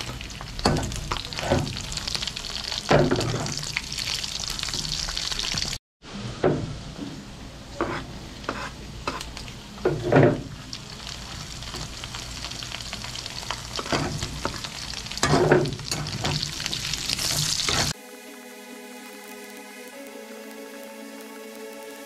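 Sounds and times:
meat sizzling in oil: 0.0 - 5.8, 9.1 - 18.0
metal spatula scraping wok: 7.8 - 9.3, 15.2 - 18.0.

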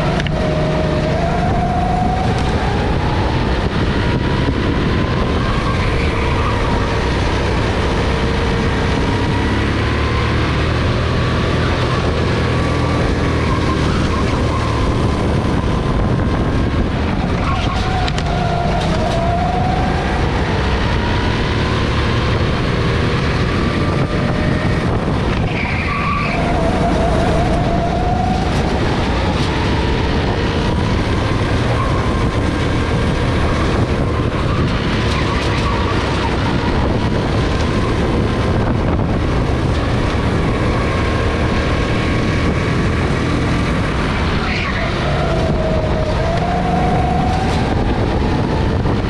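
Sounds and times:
go-kart engine running hard: 0.0 - 49.0
high squeal: 25.4 - 29.4.

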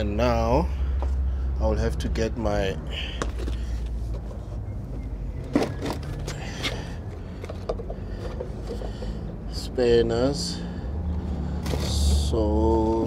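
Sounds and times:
tools rattling: 3.2 - 9.4.

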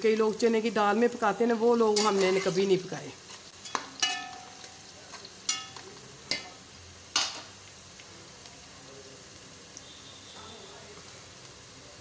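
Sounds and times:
vegetables sizzling in a pot: 0.0 - 12.0
metal spatula clanking on pot: 1.9 - 2.6, 3.6 - 7.5.

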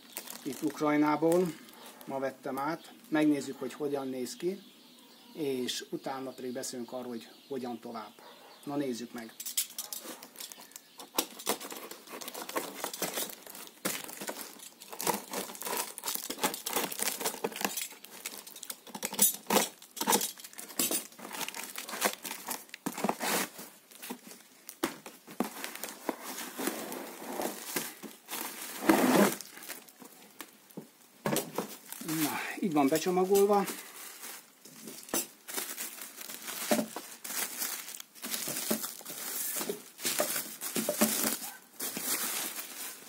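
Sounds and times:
plastic bag rustling: 0.0 - 2.1, 9.4 - 43.0
plastic wrap and tape crinkling: 0.0 - 2.6, 9.2 - 43.0
utility knife cutting packaging: 11.1 - 23.6.

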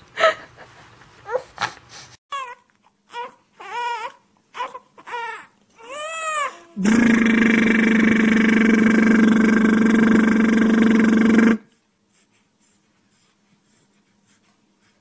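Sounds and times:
newborn baby crying: 2.3 - 6.8
loud buzzing hum: 6.8 - 11.6.

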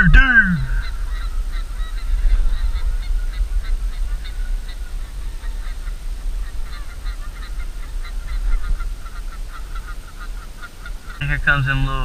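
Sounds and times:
geese honking: 0.0 - 12.0.

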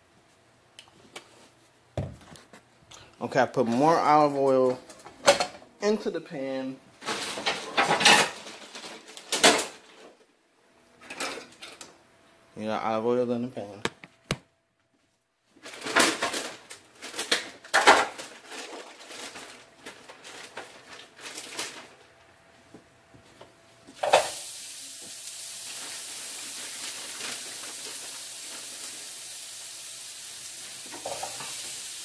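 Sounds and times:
pans and utensils clattering: 7.0 - 9.8, 15.6 - 19.4, 30.9 - 31.8
oil frying sizzle: 24.0 - 32.0.

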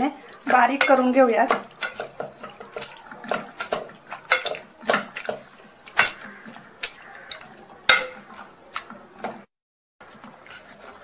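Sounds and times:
masher squelching vegetables: 0.0 - 11.0
masher knocking pot base: 0.5 - 8.3.

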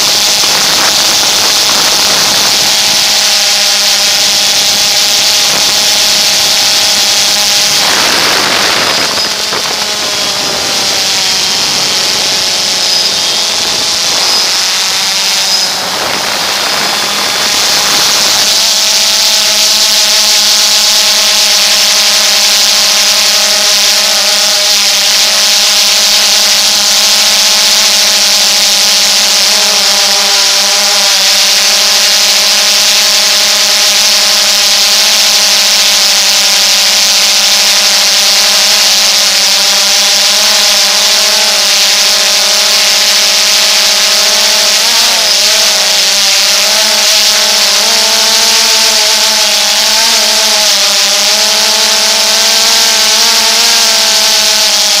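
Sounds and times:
drone propellers whining: 0.0 - 55.0.

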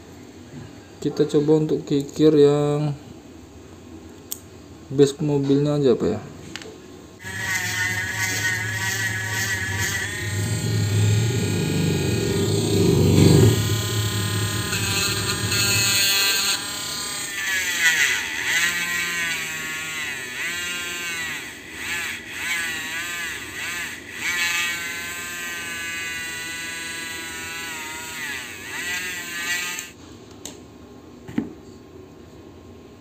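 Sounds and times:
rotary tool grinding: 7.2 - 30.0.

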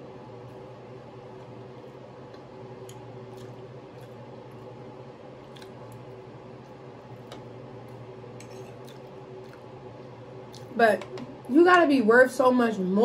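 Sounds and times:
steady low hum: 0.0 - 13.0
soft chewing: 1.3 - 10.8
fork scraping glass dish: 8.4 - 8.8.

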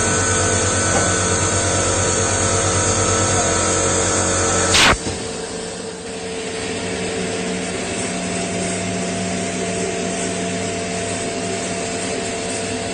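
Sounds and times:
lathe whirring: 0.0 - 5.0.

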